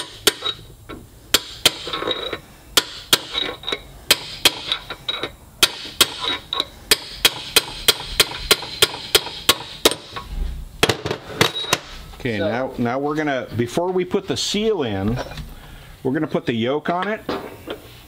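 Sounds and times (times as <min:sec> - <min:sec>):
hammer striking steel tube: 0:00.0 - 0:00.6, 0:01.3 - 0:02.0, 0:02.8 - 0:04.8, 0:05.6 - 0:10.2.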